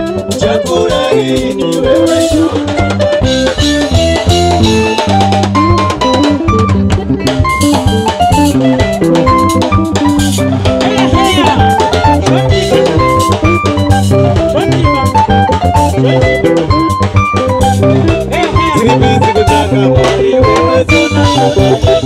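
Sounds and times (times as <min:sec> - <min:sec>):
bass guitar: 0:00.0 - 0:22.0
drum kit beat: 0:00.0 - 0:22.0
electric guitar: 0:00.0 - 0:22.0
keyboard: 0:00.0 - 0:22.0.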